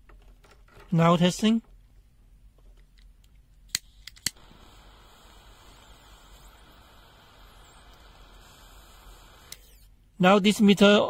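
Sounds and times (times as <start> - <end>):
gas flame hissing: 3.7 - 9.9.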